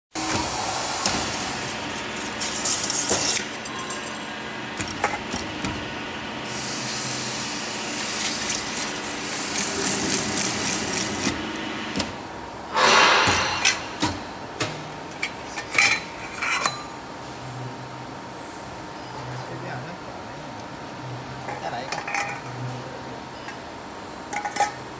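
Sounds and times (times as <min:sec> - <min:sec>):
rollers scraping hiss: 0:00.2 - 0:05.6, 0:06.4 - 0:11.9
machine motor drone: 0:00.2 - 0:14.0
sharp metallic knocks: 0:12.7 - 0:14.3.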